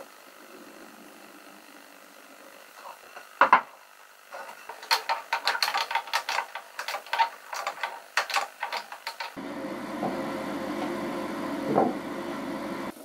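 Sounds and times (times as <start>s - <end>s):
bar clamp clicking and rattling: 4.4s - 9.4s.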